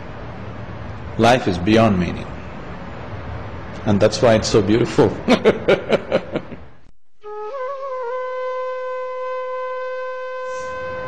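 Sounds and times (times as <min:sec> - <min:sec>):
solo flute: 0:07.2 - 0:11.0.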